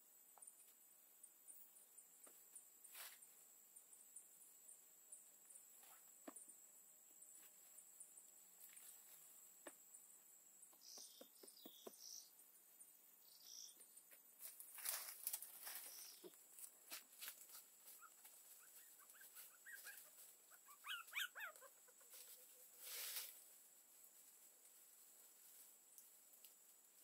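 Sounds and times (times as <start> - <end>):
puppy whimpering: 18.6 - 22.0.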